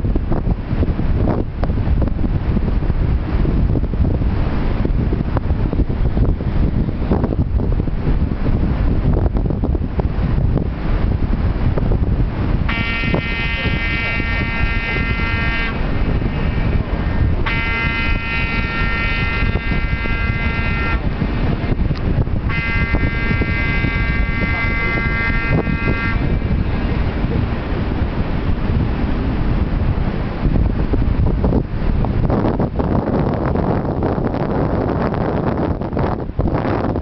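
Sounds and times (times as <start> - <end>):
wind noise on microphone: 0.0 - 37.0
ship horn blasts: 12.6 - 27.3.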